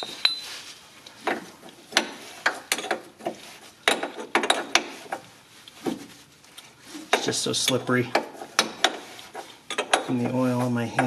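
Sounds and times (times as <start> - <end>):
gloved hands rubbing: 8.2 - 9.7.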